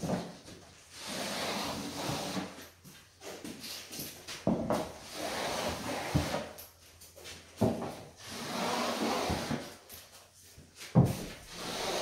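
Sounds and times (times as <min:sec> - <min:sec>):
scraping along drywall joint: 0:00.9 - 0:02.7, 0:04.7 - 0:06.6, 0:08.2 - 0:09.9, 0:11.2 - 0:12.0.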